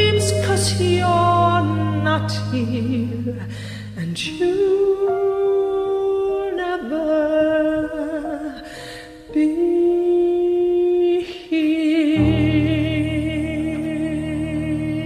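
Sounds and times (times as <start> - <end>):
low sustained backing chord: 0.0 - 8.5
breaths: 3.4 - 4.0, 8.6 - 9.3.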